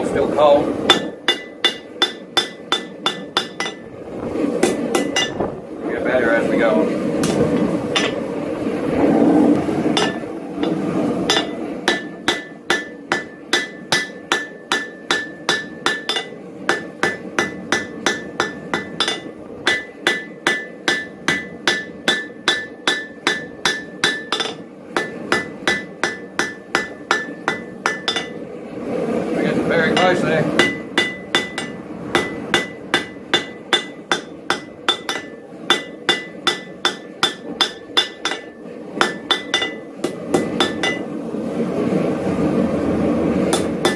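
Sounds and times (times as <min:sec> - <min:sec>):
rough noise: 0:00.0 - 0:43.9
hammer striking steel on anvil: 0:00.9 - 0:03.9, 0:04.6 - 0:05.4, 0:07.2 - 0:08.2, 0:10.0 - 0:28.4, 0:29.9 - 0:41.1, 0:43.5 - 0:43.9.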